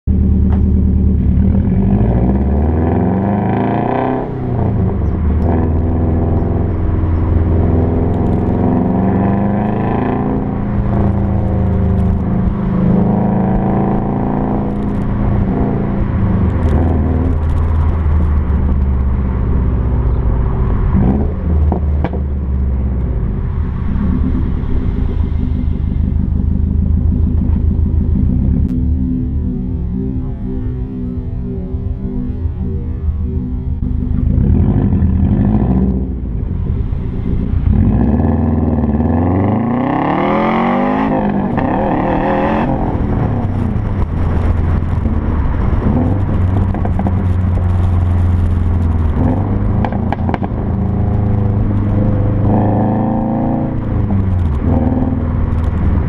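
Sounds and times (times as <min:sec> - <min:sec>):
car exhaust rumble: 0:00.0 - 0:56.0.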